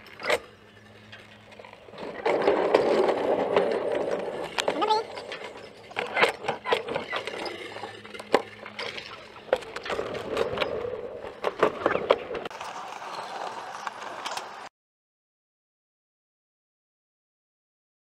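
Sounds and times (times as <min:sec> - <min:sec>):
steady rolling rumble: 0:00.0 - 0:14.7
sled clattering in metal trough: 0:01.3 - 0:12.3.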